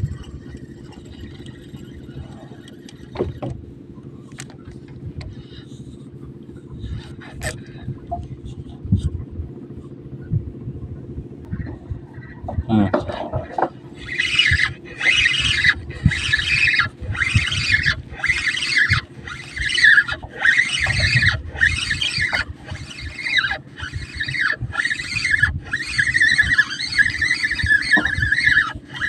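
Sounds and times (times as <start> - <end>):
fishing reel whirring: 0.0 - 3.5, 13.4 - 29.0.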